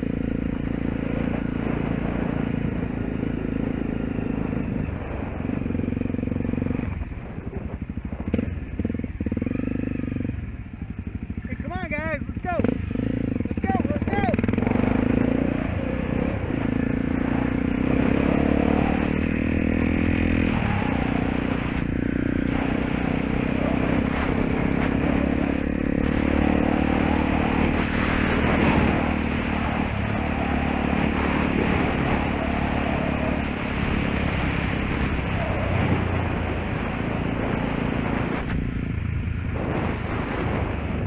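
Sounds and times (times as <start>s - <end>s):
dirt bike engine running: 0.0s - 41.0s
rattling and rustling over grass: 19.6s - 30.2s.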